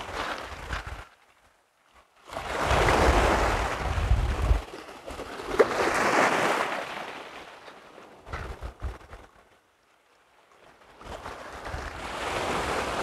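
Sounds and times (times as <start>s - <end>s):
wind rumbling on microphone: 0.0s - 1.2s, 2.4s - 4.9s, 8.2s - 9.5s, 11.0s - 13.0s
waves washing over shingle: 2.0s - 9.4s, 10.5s - 13.0s.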